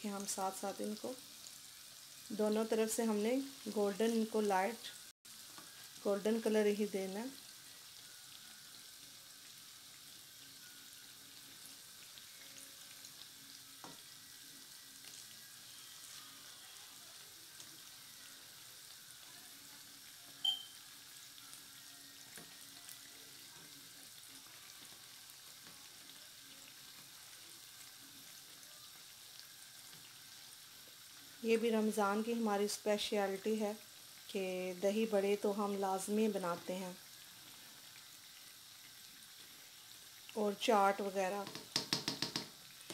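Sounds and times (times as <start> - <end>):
fritters sizzling in oil: 0.0 - 42.9
short high ping: 20.4 - 20.8.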